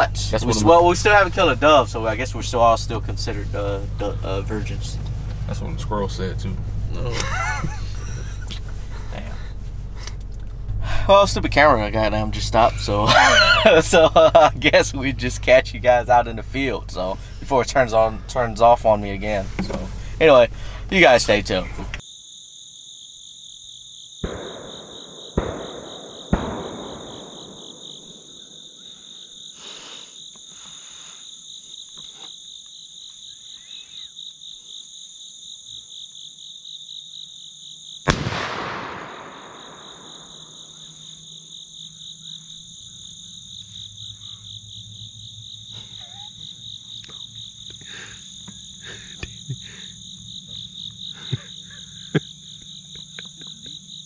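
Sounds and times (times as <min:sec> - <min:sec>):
high pulsing insect chorus: 0:00.0 - 0:54.0
shotgun shots echoing: 0:24.2 - 0:28.3, 0:38.1 - 0:40.7.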